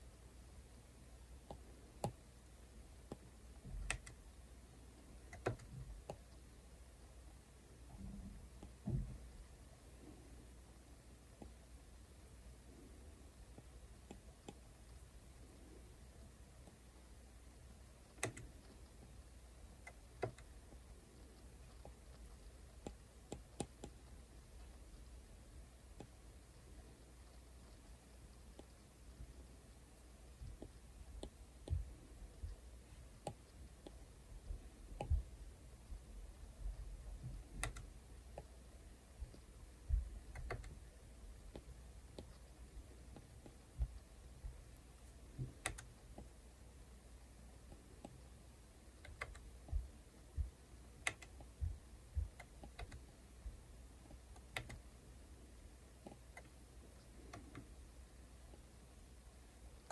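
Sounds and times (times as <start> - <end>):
soft low thumps: 7.9 - 9.5, 30.4 - 33.4, 34.3 - 38.5, 39.1 - 45.7, 49.3 - 54.2.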